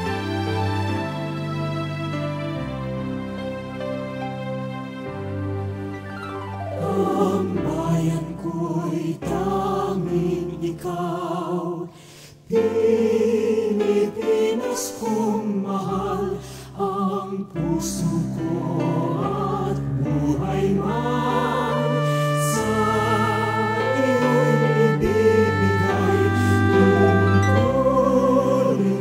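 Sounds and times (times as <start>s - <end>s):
music with sung voices: 6.8s - 29.0s.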